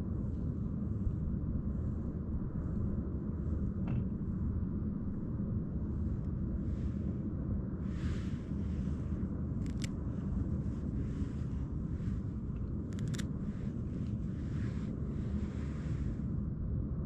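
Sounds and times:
low outdoor rumble: 0.0s - 17.0s
sharp clicks: 12.9s - 13.3s.

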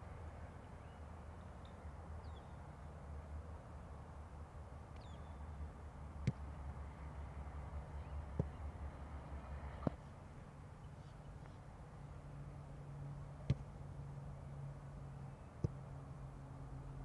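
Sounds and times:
football being kicked: 9.8s - 10.0s, 13.4s - 13.7s.

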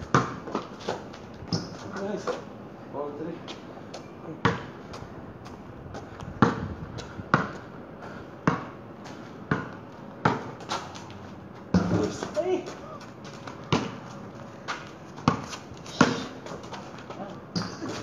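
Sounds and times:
basketball bouncing on concrete: 0.0s - 2.0s, 4.4s - 4.7s, 6.2s - 7.7s, 8.4s - 8.8s, 9.4s - 11.0s, 11.7s - 18.0s.

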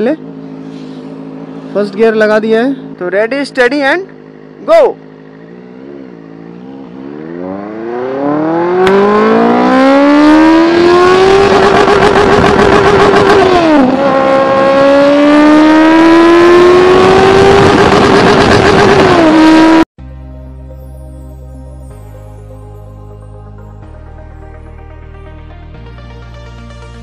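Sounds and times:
motorcycle engine accelerating: 0.0s - 19.9s.

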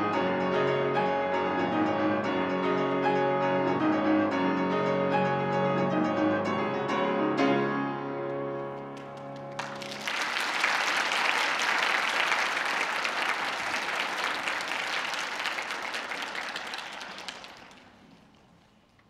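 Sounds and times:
audience applauding: 8.8s - 18.9s.

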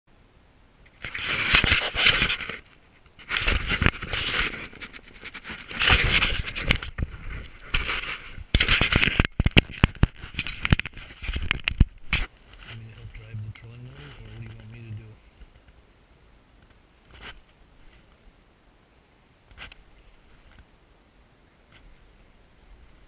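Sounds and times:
fabric rubbing on microphone: 1.0s - 15.2s, 17.0s - 18.2s.

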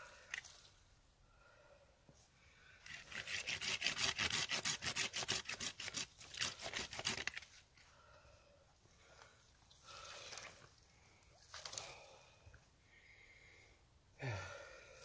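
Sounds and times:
hand saw cutting log: 2.9s - 7.4s.

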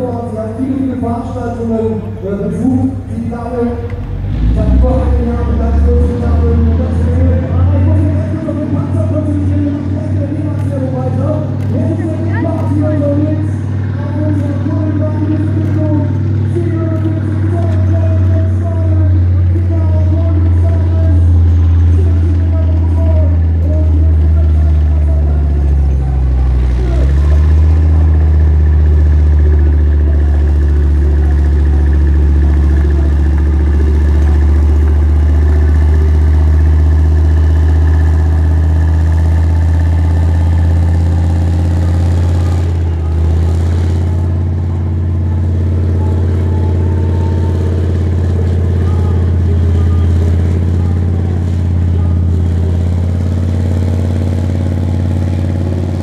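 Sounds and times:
diesel engine under heavy load: 0.0s - 56.0s.

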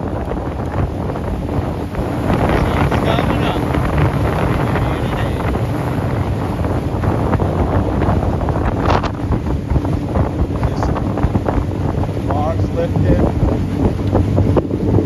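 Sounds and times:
boat motor running: 0.0s - 15.0s
wind buffeting microphone: 0.0s - 15.0s.

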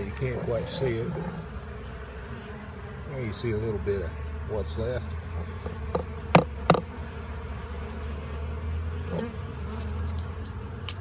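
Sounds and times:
honeybees buzzing: 0.0s - 11.0s
soft knock: 5.9s - 6.9s.

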